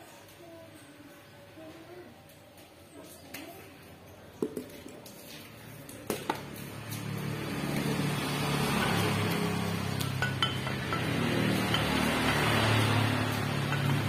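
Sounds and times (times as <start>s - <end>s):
vehicle engine running: 6.4s - 14.0s.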